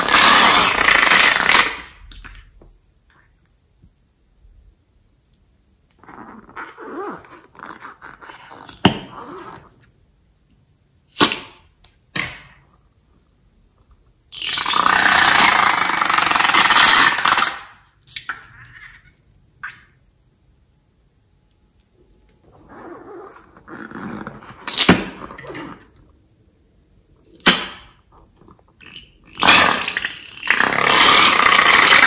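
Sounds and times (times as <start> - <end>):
balloons squeaking and crackling: 0.0 - 2.4, 6.0 - 9.9, 14.3 - 17.8, 22.4 - 26.0, 28.2 - 32.0.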